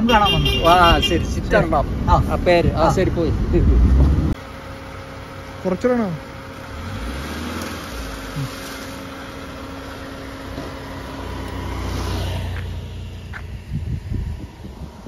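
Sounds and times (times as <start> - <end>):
vehicle passing by: 6.5 - 15.0.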